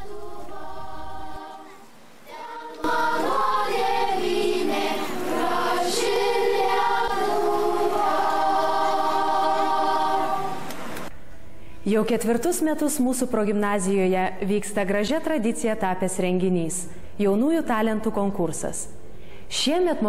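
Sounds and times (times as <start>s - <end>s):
children's choir singing: 0.0s - 11.1s.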